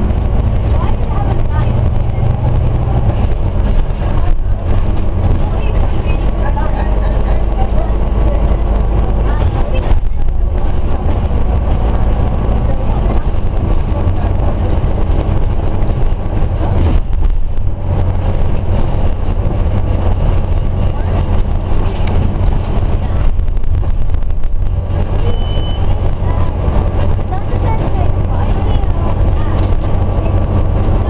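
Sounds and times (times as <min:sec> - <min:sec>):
bus engine rumble: 0:00.0 - 0:31.0
road and body noise: 0:00.0 - 0:31.0
short beep: 0:25.2 - 0:25.9.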